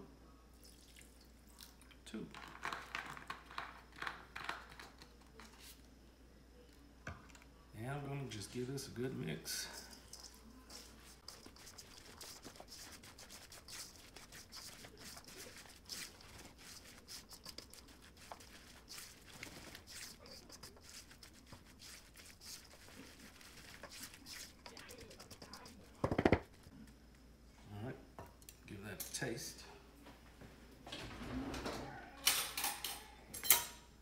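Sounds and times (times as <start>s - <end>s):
spatula scraping a metal bowl: 9.4s - 26.5s.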